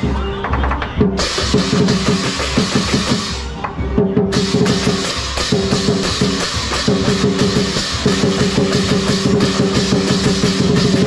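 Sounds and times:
fast drumming: 0:00.0 - 0:11.0
clashing cymbals: 0:01.1 - 0:03.6, 0:04.3 - 0:11.0.

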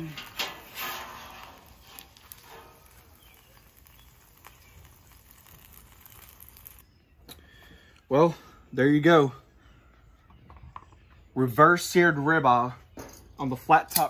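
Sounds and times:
metal spatula scraping griddle: 0:00.0 - 0:03.8.

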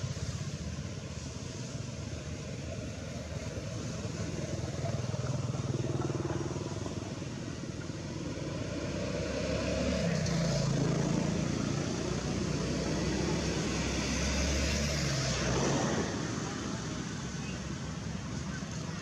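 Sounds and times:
vehicle engine droning: 0:00.0 - 0:19.0.

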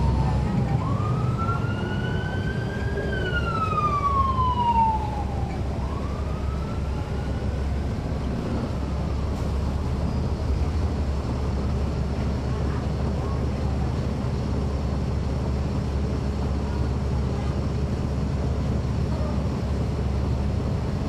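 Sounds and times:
emergency siren wailing: 0:00.0 - 0:09.9
bus diesel engine running: 0:00.0 - 0:21.0.

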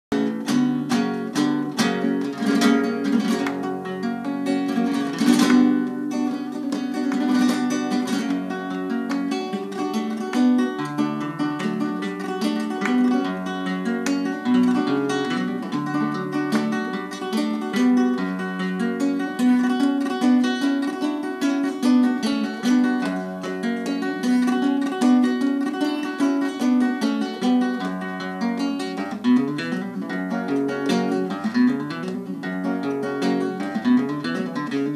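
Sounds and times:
rhythmic hand clapping: 0:00.1 - 0:03.8, 0:04.7 - 0:17.3, 0:19.7 - 0:28.0
flamenco guitar: 0:00.1 - 0:34.9.

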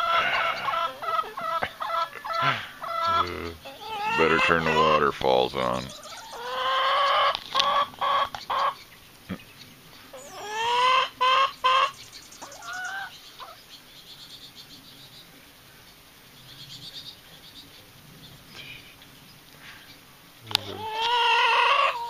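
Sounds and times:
chickens squawking: 0:00.0 - 0:22.0.

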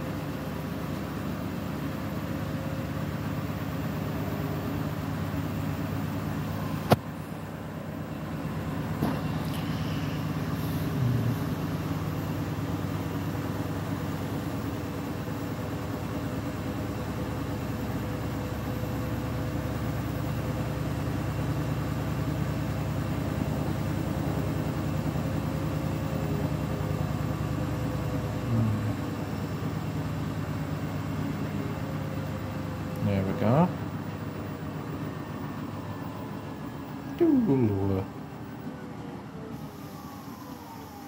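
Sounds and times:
washing machine spinning: 0:00.0 - 0:41.0.

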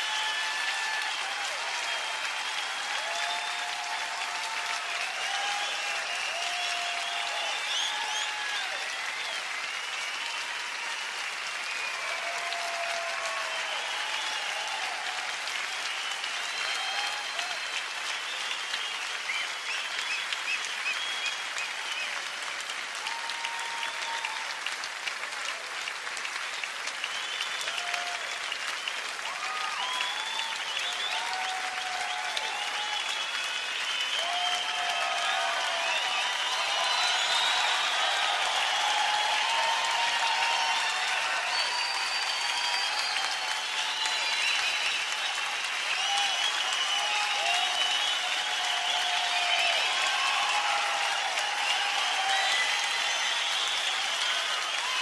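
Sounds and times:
audience clapping: 0:00.0 - 0:55.0
shouted cheers: 0:00.0 - 0:55.0
whistles: 0:05.5 - 0:12.3, 0:13.0 - 0:14.7, 0:15.7 - 0:22.7, 0:26.9 - 0:55.0.

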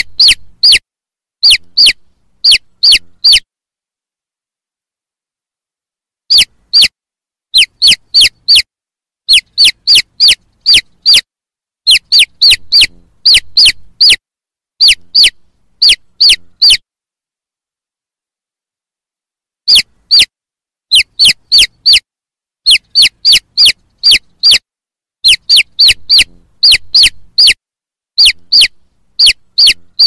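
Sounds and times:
chicks peeping: 0:00.0 - 0:00.8, 0:01.4 - 0:03.4, 0:07.6 - 0:08.7, 0:09.3 - 0:11.3, 0:11.9 - 0:14.2, 0:14.8 - 0:16.8, 0:19.7 - 0:20.3, 0:20.9 - 0:22.0, 0:22.7 - 0:24.6, 0:25.2 - 0:27.6, 0:28.2 - 0:30.0.

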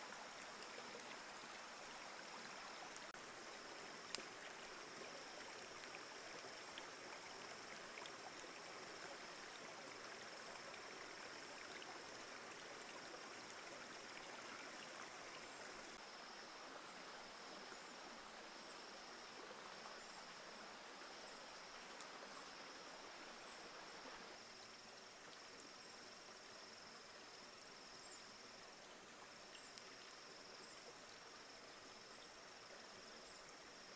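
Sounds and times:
faint steady hiss: 0:00.0 - 0:33.9
faint ticks: 0:04.0 - 0:10.0, 0:21.7 - 0:22.2, 0:26.4 - 0:31.4.

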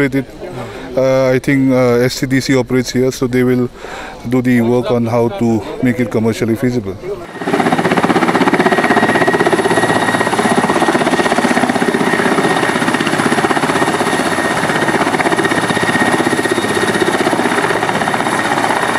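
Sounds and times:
helicopter rotor beat: 0:07.2 - 0:18.9
turbine whine: 0:07.2 - 0:18.9.

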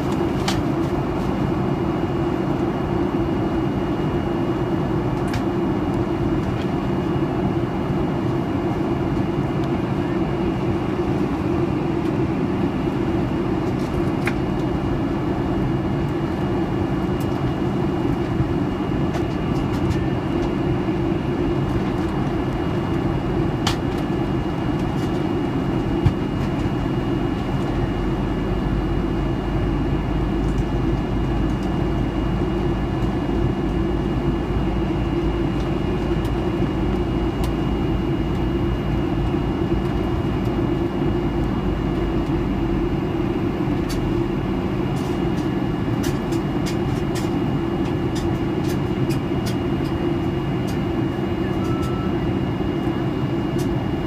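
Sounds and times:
airplane cabin rumble: 0:00.0 - 0:54.0
faint high whine: 0:50.9 - 0:54.0.

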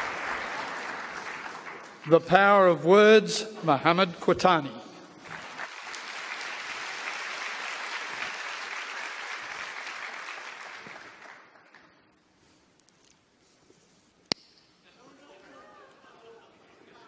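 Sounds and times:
audience applauding: 0:00.0 - 0:02.3, 0:05.2 - 0:12.0.

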